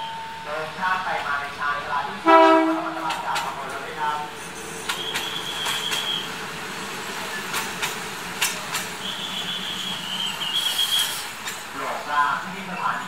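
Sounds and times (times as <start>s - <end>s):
train rumbling: 0.0s - 13.0s
wheels clicking over rail joints: 2.9s - 3.9s, 4.8s - 6.2s, 7.3s - 9.5s, 10.5s - 12.0s.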